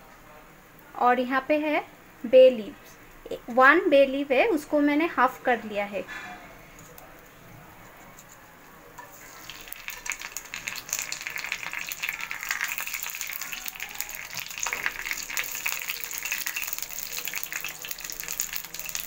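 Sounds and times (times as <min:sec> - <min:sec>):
spatula stirring oil: 0:07.8 - 0:19.0
spices sizzling in hot oil: 0:09.0 - 0:19.0.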